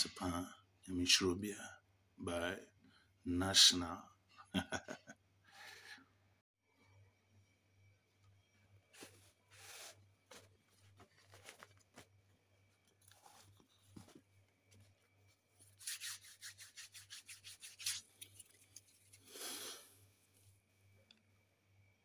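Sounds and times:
faint rubbing and scratching: 8.9s - 19.4s.

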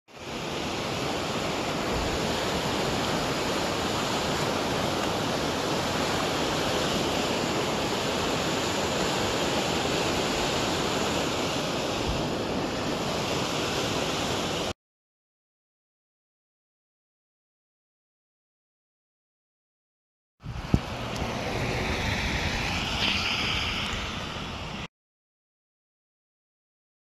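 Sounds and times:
steady rushing noise: 0.1s - 14.7s, 20.4s - 24.9s.

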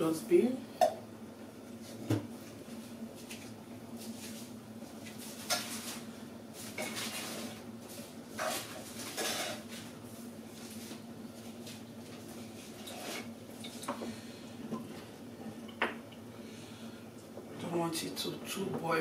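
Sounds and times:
steady low hum: 0.0s - 19.0s
metal kitchenware clattering: 8.4s - 9.6s.

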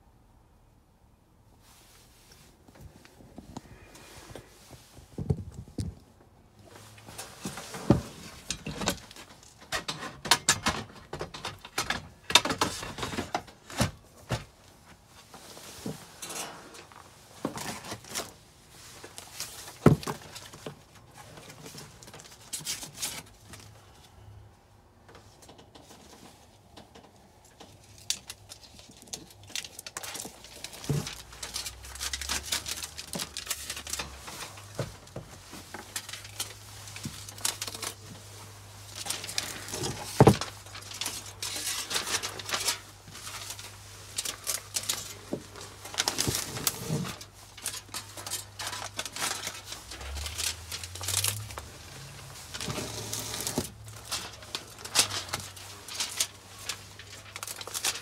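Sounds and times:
rustling and crinkling: 1.5s - 58.0s.

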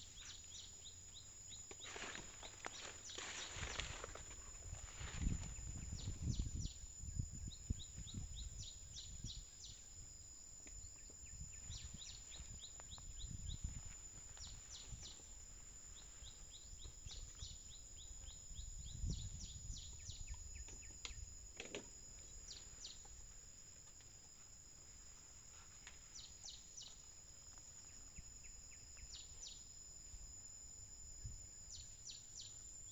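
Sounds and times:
high insect drone: 0.0s - 32.9s
elephant rustling leafy plants: 1.8s - 5.8s
bird chirps: 10.8s - 21.2s, 27.7s - 29.8s, 31.2s - 32.9s.

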